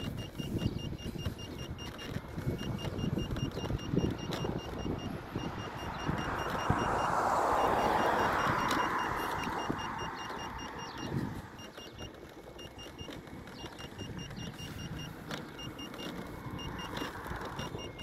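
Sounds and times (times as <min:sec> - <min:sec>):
wind rush on microphone: 0:00.0 - 0:11.6
high-pitched beeps: 0:00.0 - 0:18.0.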